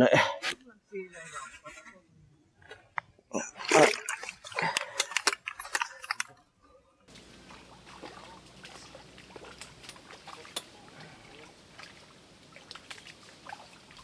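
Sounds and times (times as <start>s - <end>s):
water splash: 3.6s - 6.2s, 7.1s - 14.0s
faint steady hiss: 7.1s - 14.0s.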